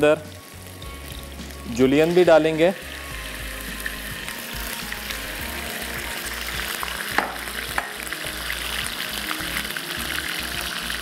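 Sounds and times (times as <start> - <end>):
chicken sizzling in frying pan: 0.0 - 11.0
sharp knock: 7.2 - 7.9.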